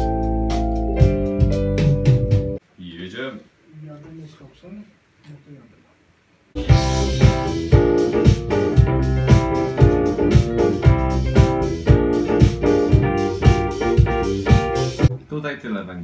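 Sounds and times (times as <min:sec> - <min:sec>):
keyboard piano chords: 0:00.0 - 0:02.6, 0:06.6 - 0:15.2
steady drum beat: 0:00.0 - 0:02.6, 0:06.6 - 0:15.2.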